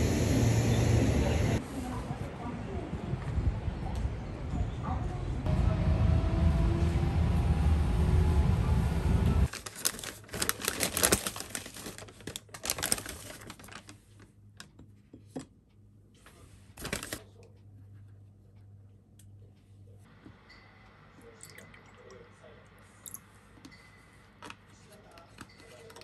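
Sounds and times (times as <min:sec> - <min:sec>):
low rumble of train cabin: 0:00.0 - 0:09.5
paper bag crinkling and rustling: 0:09.5 - 0:14.3, 0:16.8 - 0:17.3.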